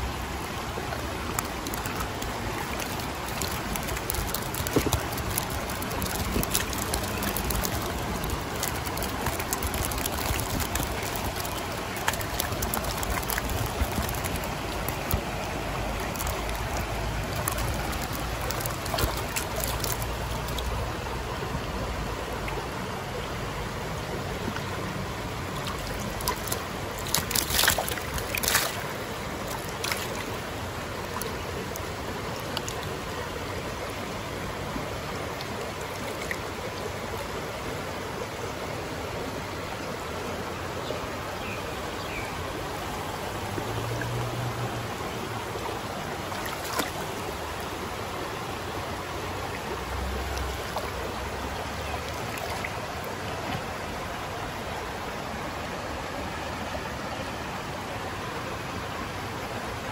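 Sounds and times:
creek water running: 0.0 - 59.9.

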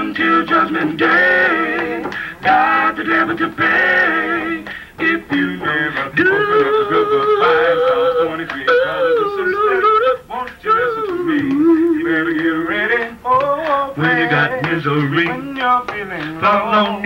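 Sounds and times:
men singing in close harmony: 0.0 - 17.0.

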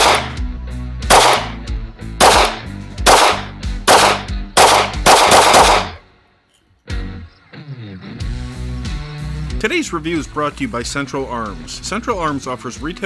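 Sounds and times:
pistol shots with echo: 0.0 - 0.4, 1.1 - 1.6, 2.2 - 6.0.

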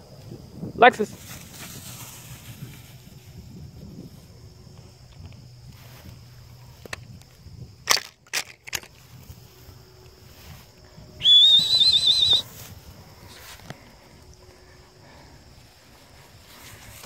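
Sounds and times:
footsteps through tall grass: 1.1 - 7.5, 8.9 - 11.0, 12.4 - 17.0
dog whistle trill: 11.2 - 12.5.

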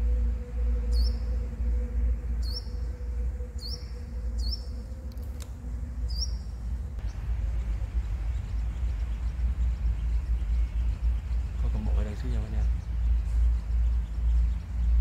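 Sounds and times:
bird calling high notes: 0.0 - 6.8
steady low rumble: 0.0 - 15.0.

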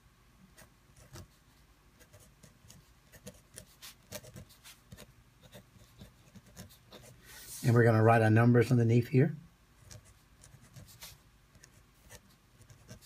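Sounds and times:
pen scratching on paper: 0.6 - 1.4, 2.0 - 7.2, 9.8 - 13.0.

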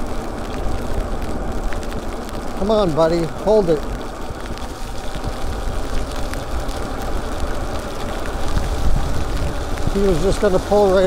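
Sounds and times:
bike tyres hissing on wet pavement: 0.0 - 11.0
wind rumbling over microphone: 0.0 - 11.0.

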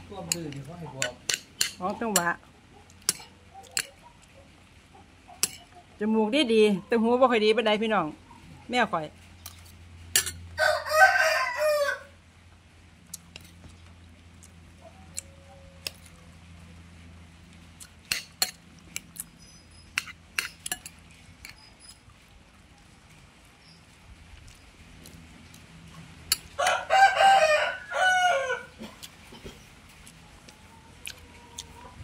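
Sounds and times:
rooster crowing: 10.6 - 12.2, 26.6 - 28.8.

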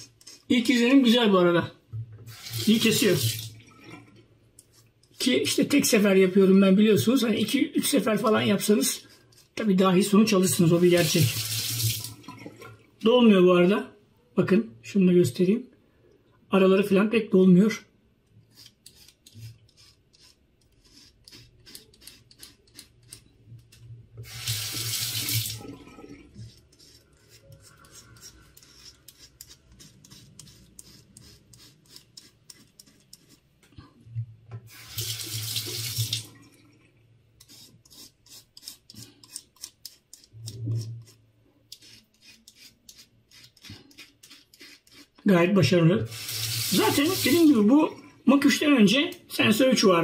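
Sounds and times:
razor scraping stubble: 26.4 - 33.5, 37.4 - 45.2.

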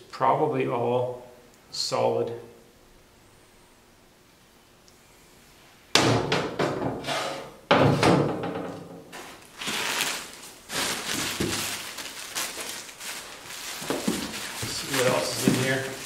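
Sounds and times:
rummaging through plastic packing: 9.1 - 16.0.

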